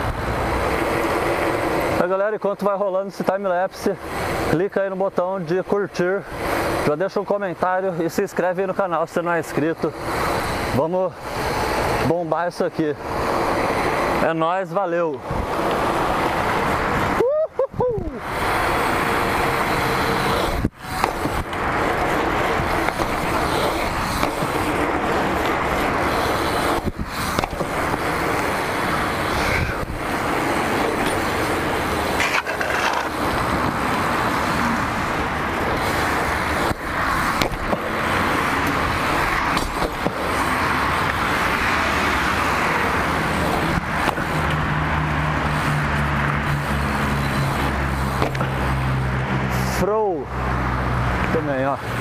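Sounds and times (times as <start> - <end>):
bike tyres rolling on asphalt: 0.0 - 52.0
wind rush on microphone: 15.2 - 32.2.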